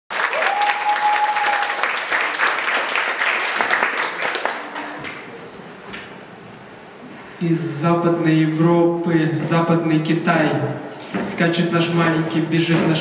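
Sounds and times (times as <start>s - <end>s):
audience applauding: 0.1s - 5.3s.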